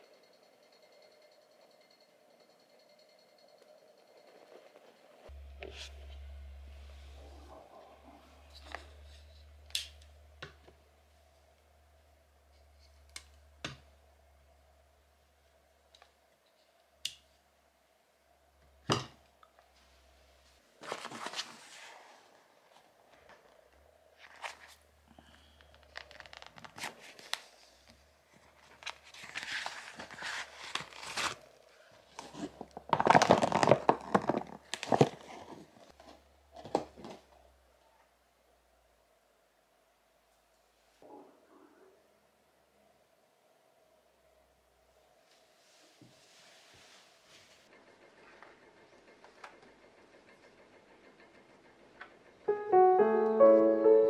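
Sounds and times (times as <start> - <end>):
plastic bag crinkling: 25.6 - 27.5, 28.4 - 35.9.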